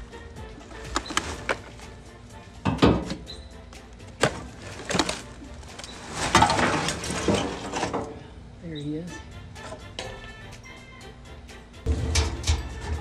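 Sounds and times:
garbage clattering: 0.6s - 2.0s, 2.6s - 8.4s, 11.9s - 13.0s
plastic trash bags rustling: 0.7s - 2.0s, 4.0s - 8.2s.

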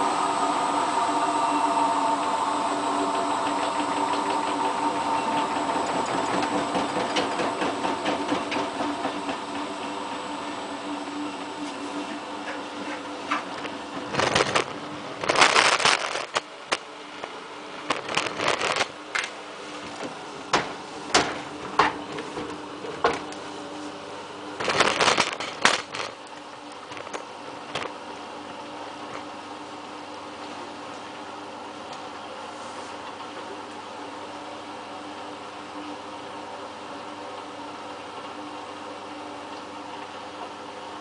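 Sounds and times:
washing machine spinning hum: 0.0s - 41.0s.

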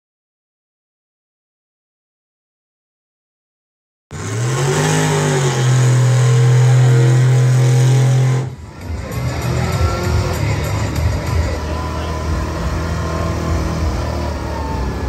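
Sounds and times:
rough engine sound: 4.1s - 15.0s
truck engine revving: 4.1s - 15.0s.

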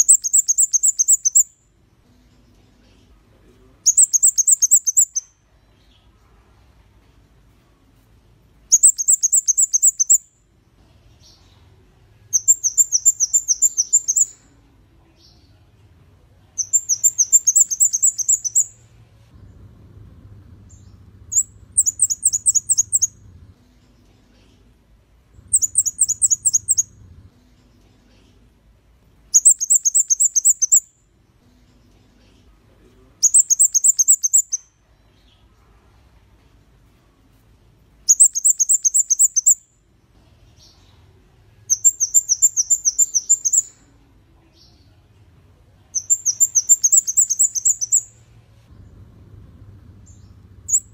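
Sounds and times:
bird calling high sharp chips: 16.6s - 18.7s, 21.3s - 23.2s, 25.5s - 26.9s, 46.0s - 48.1s.

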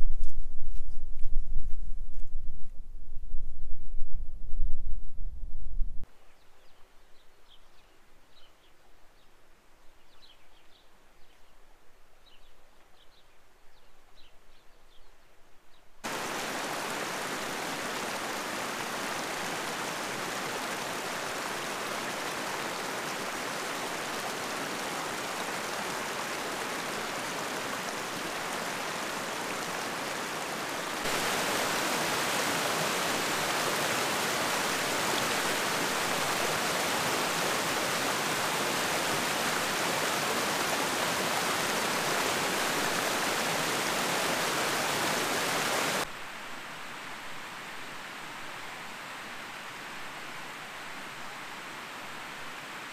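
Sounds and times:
creek water rushing over cascades: 16.0s - 52.9s.

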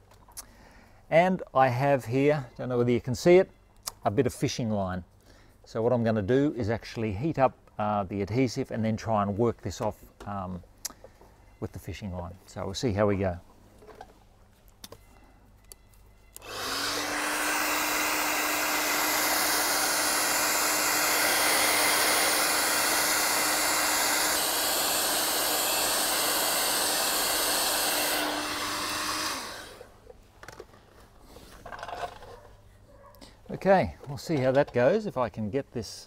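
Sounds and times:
hairdryer blowing: 16.4s - 29.9s.

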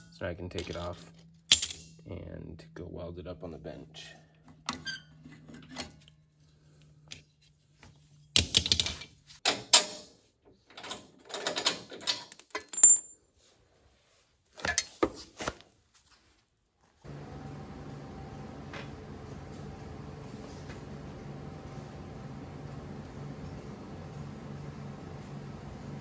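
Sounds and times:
steel parts clanking and rattling: 0.0s - 2.0s
steady hum: 17.1s - 26.0s.

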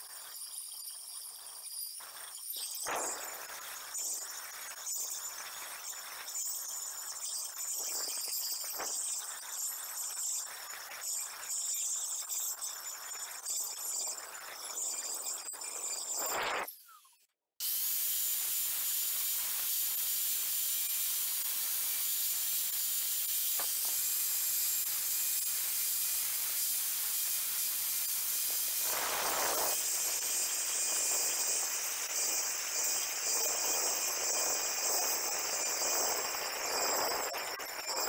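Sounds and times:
angle grinder grinding tile: 18.2s - 38.0s.

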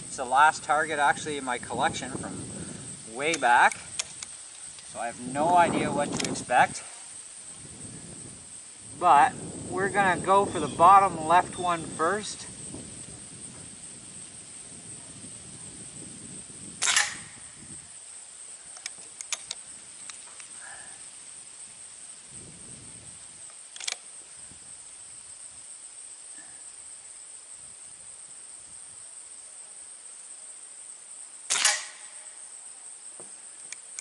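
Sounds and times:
insects buzzing: 0.0s - 34.0s
air rifle shots: 16.8s - 17.5s, 31.5s - 32.3s.

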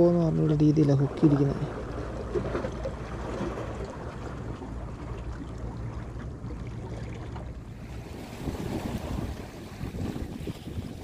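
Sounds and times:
sea water washing against rocks: 6.8s - 11.0s.

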